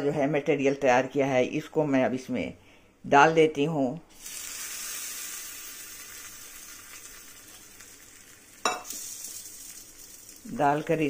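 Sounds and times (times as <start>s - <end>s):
hot oil sizzling: 4.1s - 11.0s.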